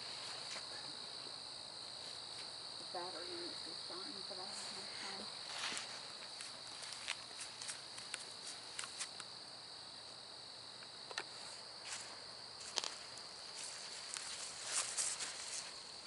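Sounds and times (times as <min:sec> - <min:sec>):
night insects chorus: 0:00.0 - 0:16.0
footsteps on leaf litter: 0:04.6 - 0:09.1, 0:11.9 - 0:15.8.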